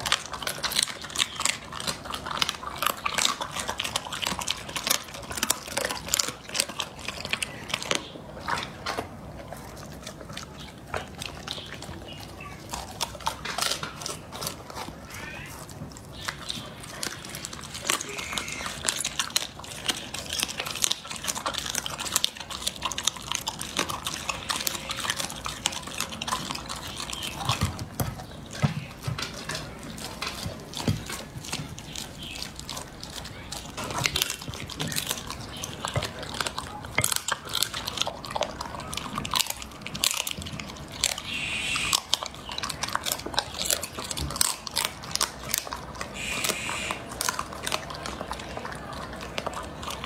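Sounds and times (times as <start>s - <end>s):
dog chewing meat and bone: 0.0s - 50.0s.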